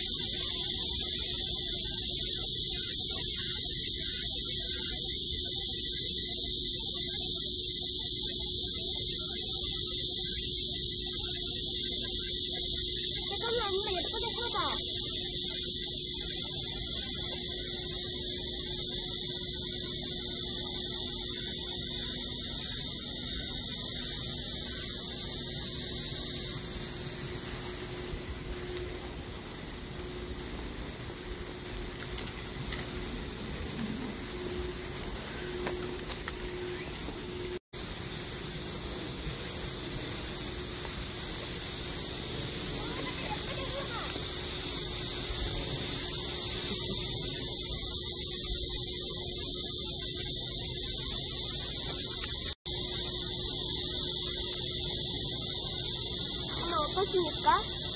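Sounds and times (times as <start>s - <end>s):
faint ticks: 28.6s - 29.0s.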